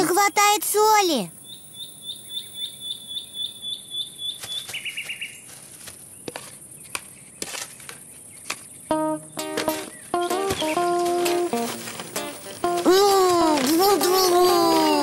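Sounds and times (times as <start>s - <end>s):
music notes: 8.9s - 15.0s.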